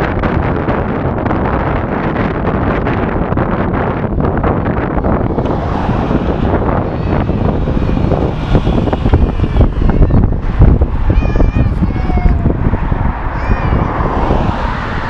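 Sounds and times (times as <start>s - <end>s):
wind buffeting microphone: 0.0s - 15.0s
bus passing: 4.1s - 15.0s
car driving past: 5.0s - 11.2s, 12.4s - 15.0s.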